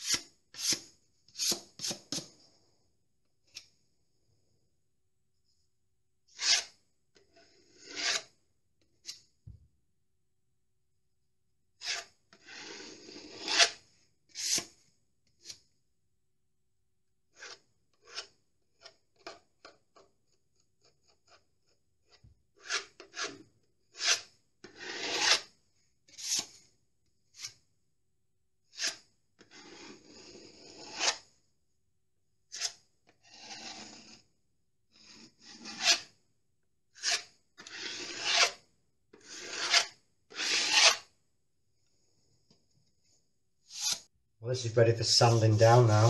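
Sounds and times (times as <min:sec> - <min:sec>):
metal knife scraping plaster wall: 0:00.0 - 0:02.8, 0:06.2 - 0:09.4, 0:11.8 - 0:15.8, 0:17.3 - 0:27.7, 0:28.6 - 0:31.5, 0:32.4 - 0:36.3, 0:36.9 - 0:41.2, 0:43.6 - 0:44.1.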